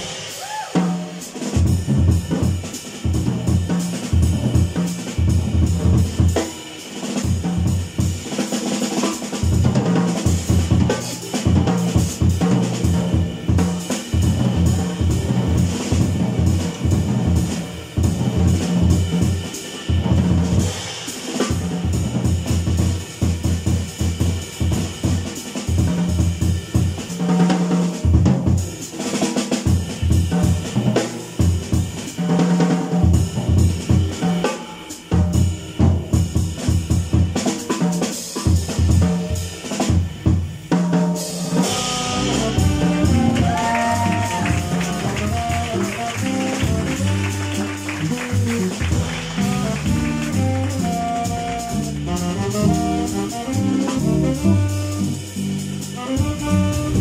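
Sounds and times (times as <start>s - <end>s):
drum kit solo: 0.0s - 57.0s
double bass: 1.7s - 6.4s, 9.5s - 20.8s, 21.5s - 28.8s, 29.7s - 32.5s, 33.1s - 34.4s, 35.2s - 37.4s, 41.6s - 57.0s
cymbal crash: 41.6s - 43.0s
saxophone: 41.6s - 57.0s.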